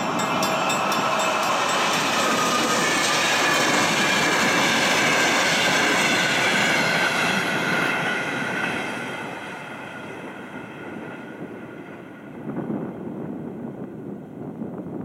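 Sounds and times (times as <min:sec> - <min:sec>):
train passing over rails: 0:00.0 - 0:14.7.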